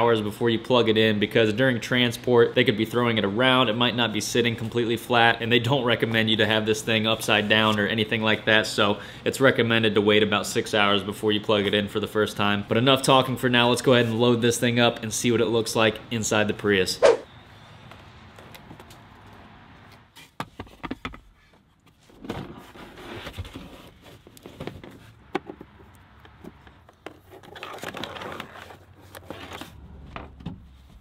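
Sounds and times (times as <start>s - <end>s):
rustling and shuffling: 18.0s - 31.0s.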